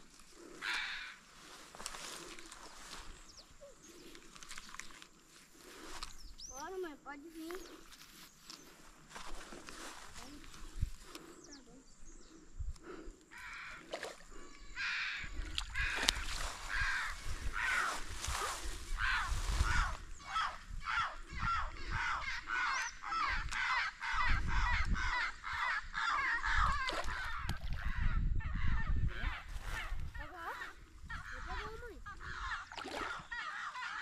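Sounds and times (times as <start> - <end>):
birds calling: 0.0 - 34.0.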